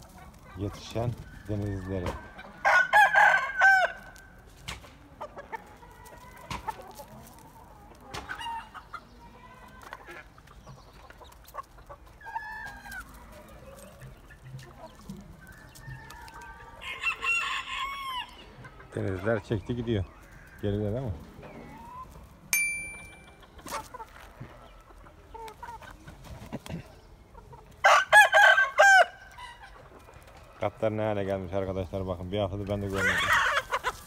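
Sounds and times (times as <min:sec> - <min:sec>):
chickens squawking: 0:00.0 - 0:04.4, 0:05.1 - 0:22.5, 0:23.1 - 0:34.0
chickens clucking: 0:00.0 - 0:34.0.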